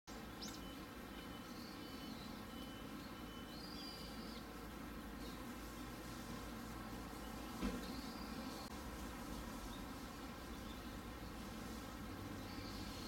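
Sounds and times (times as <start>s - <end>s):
faint high bird calls: 0.1s - 4.6s.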